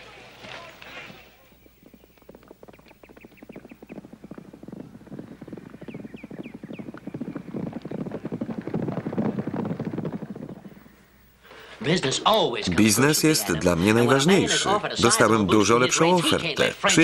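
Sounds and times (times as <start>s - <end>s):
horses galloping on dry ground: 0.0s - 17.0s.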